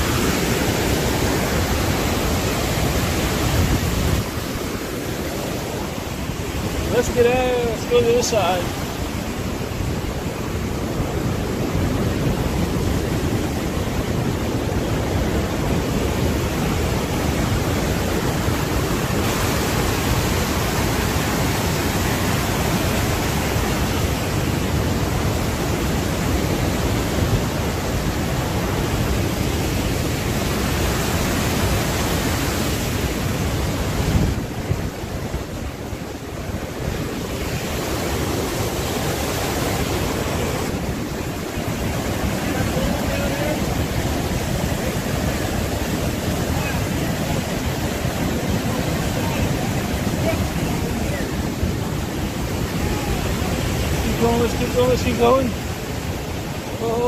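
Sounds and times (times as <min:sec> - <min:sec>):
waterfall roaring: 0:00.0 - 0:57.0
wind on microphone: 0:00.0 - 0:57.0.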